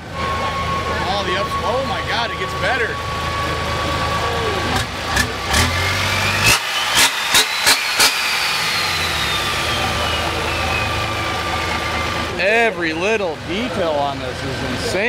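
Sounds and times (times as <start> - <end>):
turbo whistle: 0.0 - 4.7, 5.9 - 12.4
diesel truck engine running: 0.0 - 15.0
sharp cracks: 6.5 - 9.5.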